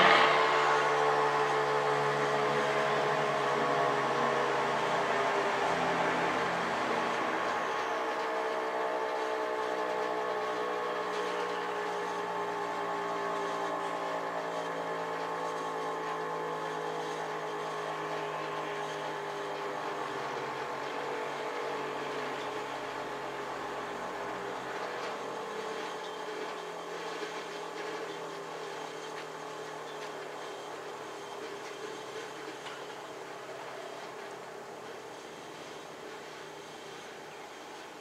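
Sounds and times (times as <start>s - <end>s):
warning siren winding down: 0.0s - 18.5s.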